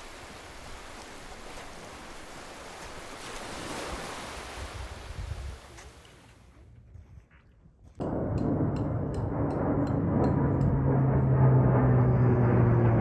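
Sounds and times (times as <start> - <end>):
lake water lapping: 0.0 - 6.3
wind rumbling on microphone: 4.0 - 6.0.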